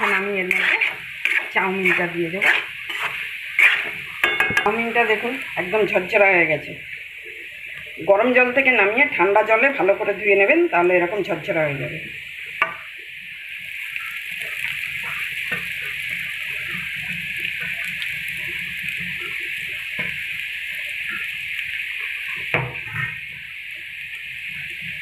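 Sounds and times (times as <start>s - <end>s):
food sizzling in a wok: 0.0s - 25.0s
knocks against a pan: 4.2s - 4.8s.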